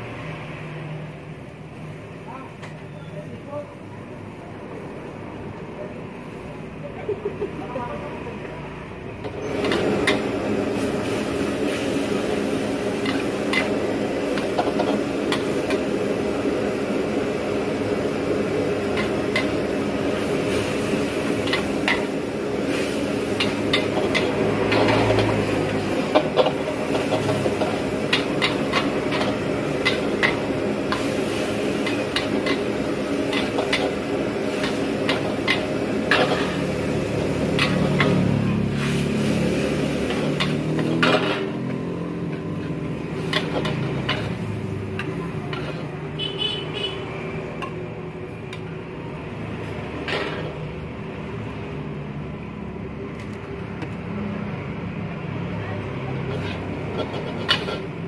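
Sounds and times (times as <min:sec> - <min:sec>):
metal ladle scraping a wok: 0:18.8 - 0:46.0, 0:49.9 - 0:50.7, 0:56.2 - 0:58.0.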